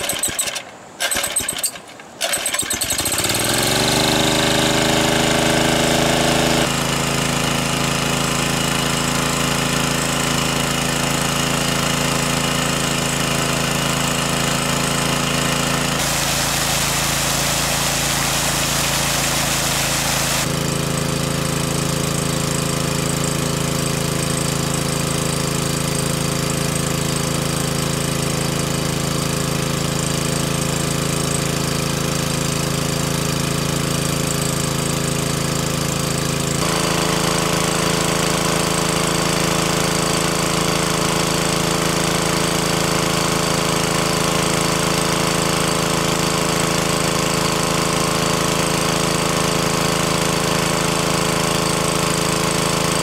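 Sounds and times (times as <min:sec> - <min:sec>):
water pump engine running: 0:00.0 - 0:53.0
water rushing from hose: 0:00.0 - 0:53.0.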